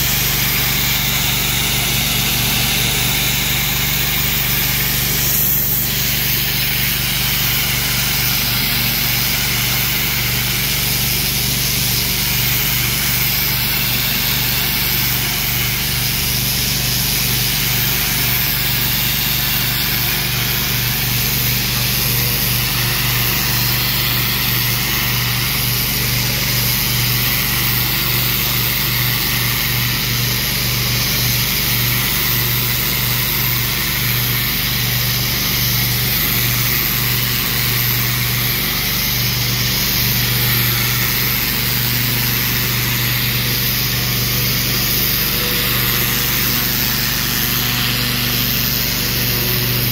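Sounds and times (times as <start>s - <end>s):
pressure washer motor drone: 0.0s - 49.9s
water jet hissing on brick wall: 0.0s - 49.9s.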